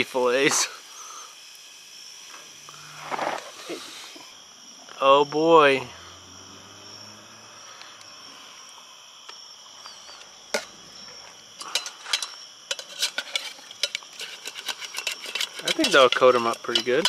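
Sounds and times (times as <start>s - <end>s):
crickets chirping: 0.0s - 17.0s
metal tongs knocking on pot: 15.3s - 17.0s.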